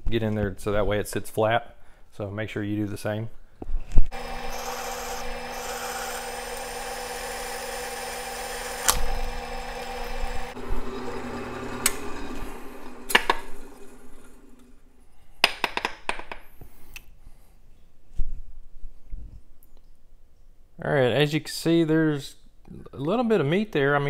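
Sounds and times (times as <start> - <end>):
drill press running: 4.1 - 14.9.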